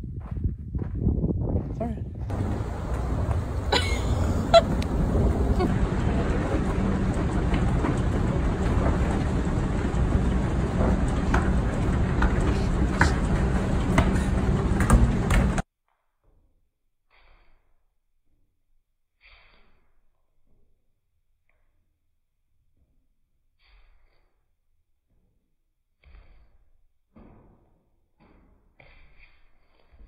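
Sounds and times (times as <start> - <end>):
escalator rumble and hum: 0.0 - 15.6.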